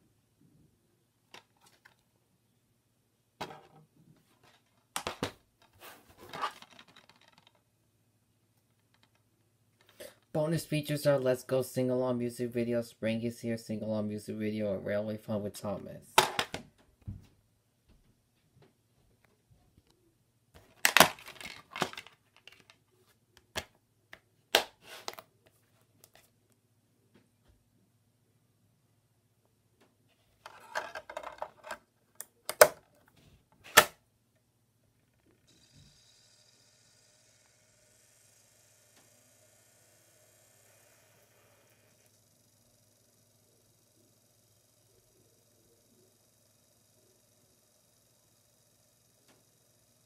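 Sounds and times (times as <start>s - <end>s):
hard plastic clicking and clattering: 4.4s - 7.6s, 20.6s - 22.8s, 30.5s - 33.1s.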